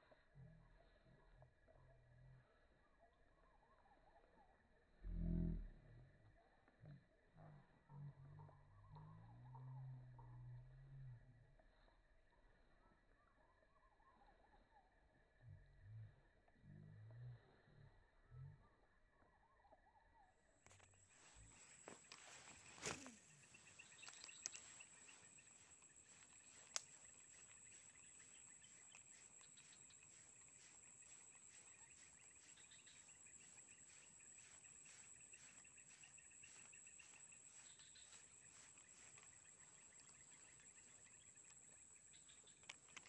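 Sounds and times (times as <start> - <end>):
high-pitched insect whine: 21.1 - 43.0
fast even chirping: 21.2 - 42.6.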